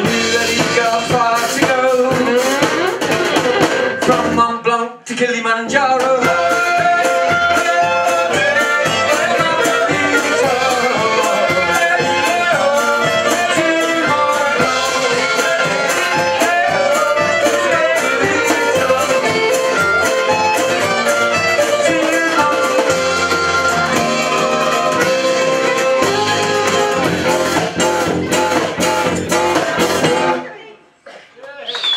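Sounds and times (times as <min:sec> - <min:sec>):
voices singing along: 0:00.0 - 0:04.5, 0:05.2 - 0:27.6
string band playing: 0:00.0 - 0:04.6, 0:05.8 - 0:30.5
strummed banjo and guitars: 0:00.0 - 0:04.7, 0:05.7 - 0:30.5
fiddle melody: 0:06.3 - 0:29.8.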